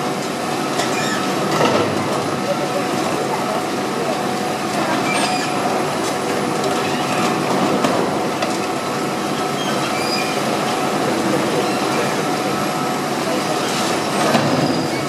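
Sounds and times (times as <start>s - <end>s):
excavator engine and hydraulics: 0.0s - 15.0s.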